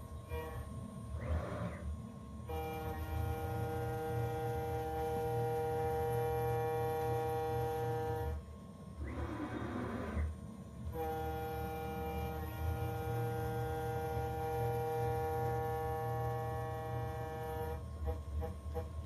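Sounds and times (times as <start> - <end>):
cnc spindle whine: 0.0 - 19.0.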